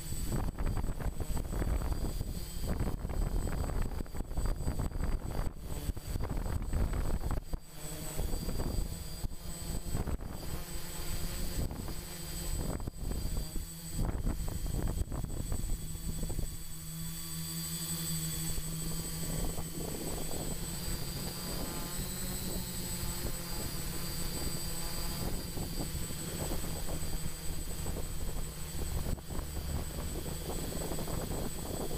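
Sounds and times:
model aircraft propellers humming: 0.0s - 31.9s
wind buffeting microphone: 0.1s - 7.6s, 12.6s - 16.6s, 25.1s - 31.9s.

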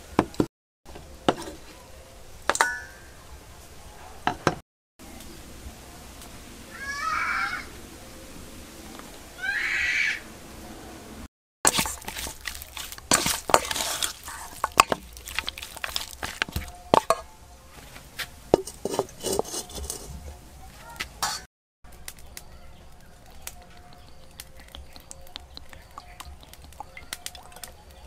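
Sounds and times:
metal spoon scraping steel bowl: 11.7s - 17.3s, 18.5s - 20.3s, 21.2s - 21.5s.

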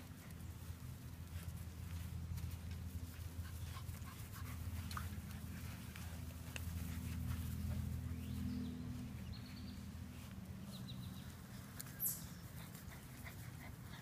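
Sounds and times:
dog panting: 12.4s - 14.0s.

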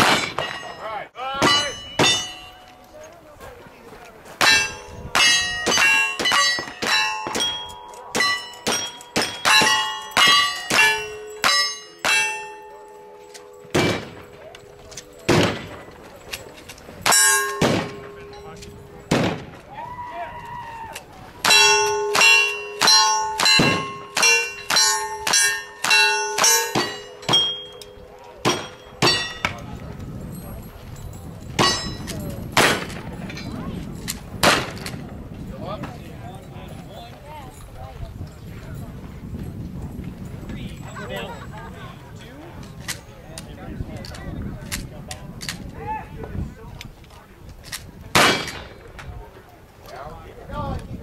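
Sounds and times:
gunshots: 0.0s - 0.7s, 13.7s - 14.4s, 15.3s - 15.9s, 17.0s - 18.4s, 19.1s - 19.7s, 32.6s - 33.1s, 34.4s - 34.9s, 48.2s - 48.8s
steel target ringing: 0.0s - 2.8s, 4.4s - 16.1s, 17.0s - 19.6s, 21.4s - 29.7s, 31.6s - 32.9s.

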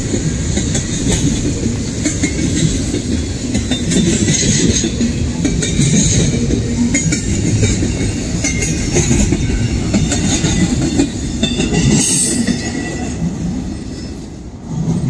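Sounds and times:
clicking over rail joints: 0.0s - 13.1s
train wheels rumbling on rails: 0.0s - 15.0s
high wheel squeals: 8.0s - 14.4s.

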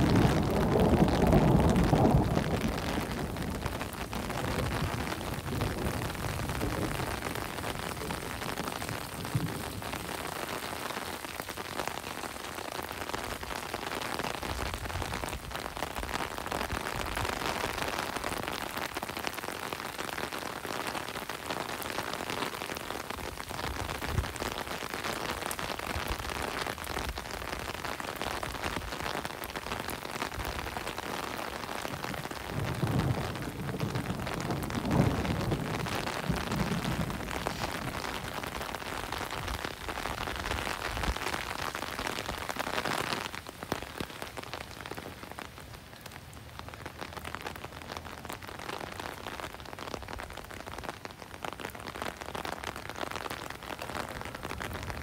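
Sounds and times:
rain falling on pavement: 0.0s - 55.0s.

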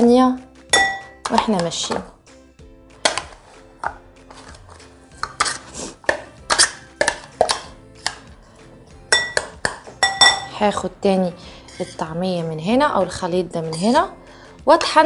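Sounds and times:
spoon knocking in bowl: 0.8s - 1.6s, 9.1s - 10.5s.

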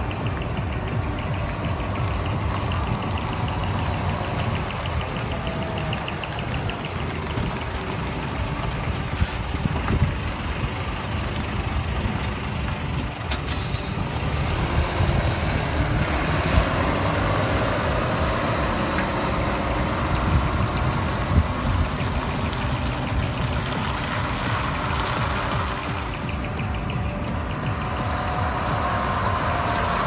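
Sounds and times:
truck diesel engine running: 0.0s - 30.0s
air brakes hissing: 13.3s - 13.9s.

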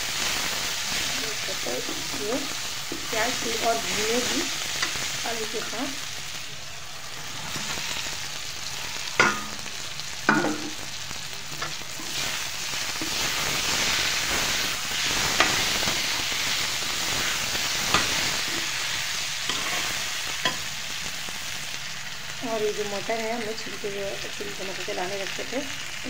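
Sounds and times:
vegetables sizzling in oil: 0.0s - 26.0s
metal spoon scraping pan: 0.9s - 6.0s, 10.3s - 10.8s, 14.6s - 16.5s, 17.2s - 20.7s
sharp metal clanks: 9.2s - 9.6s, 10.3s - 10.8s.

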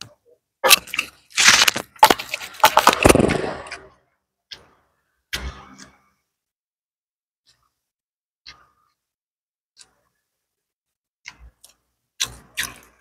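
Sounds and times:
fried fish crackling and crunching: 0.6s - 3.8s, 11.6s - 13.0s.

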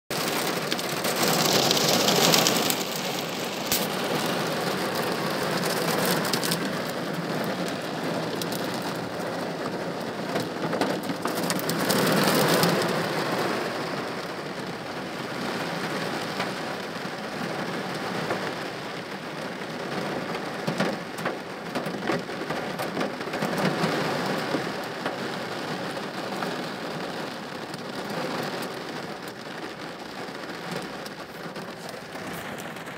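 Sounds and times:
heavy rain on car roof: 0.1s - 32.9s.

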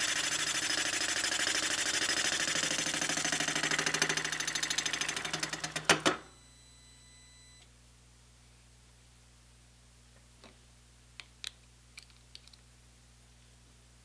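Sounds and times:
milling machine boring metal: 0.0s - 6.2s
faint machine hum: 0.0s - 14.0s.

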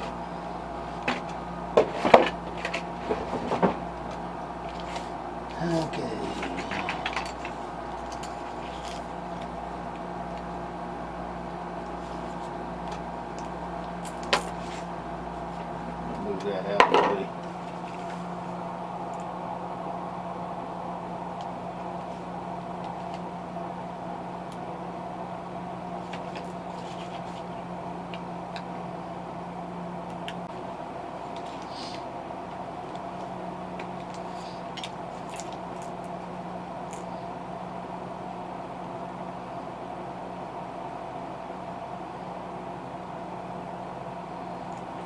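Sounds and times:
background hum with held tones: 0.0s - 45.0s.

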